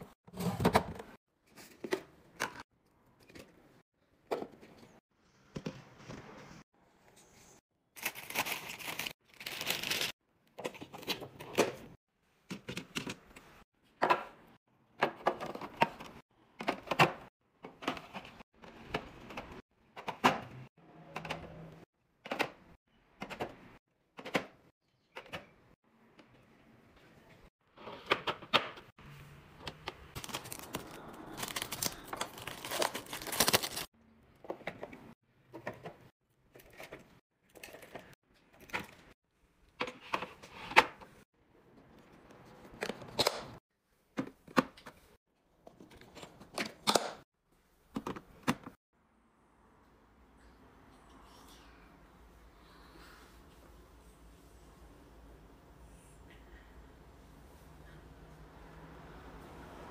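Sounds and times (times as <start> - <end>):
wrappers crinkling: 30.2 - 33.9.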